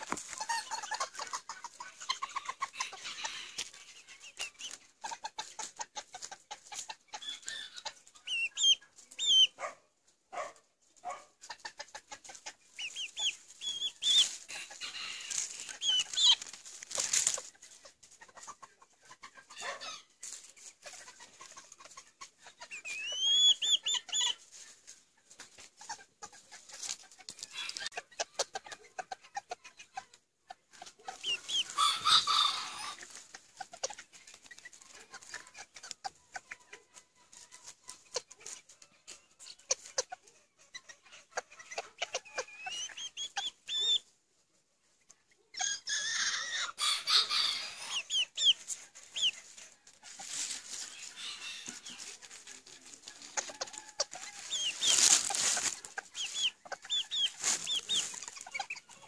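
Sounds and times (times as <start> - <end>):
chickens clucking: 0.0 - 59.0.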